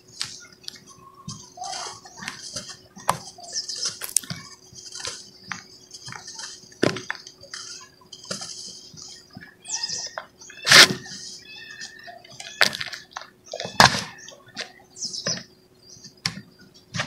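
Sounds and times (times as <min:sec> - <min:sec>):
dry cement crunching: 0:01.2 - 0:09.1.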